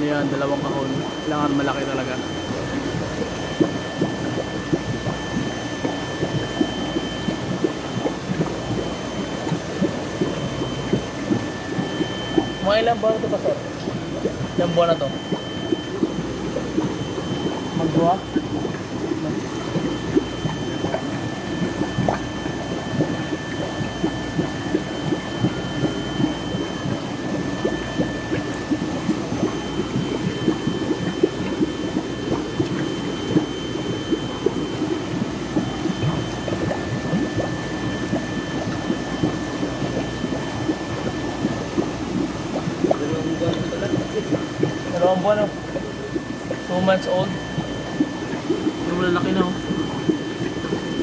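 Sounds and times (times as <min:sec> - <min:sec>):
water bubbling and splashing: 0:00.0 - 0:51.0.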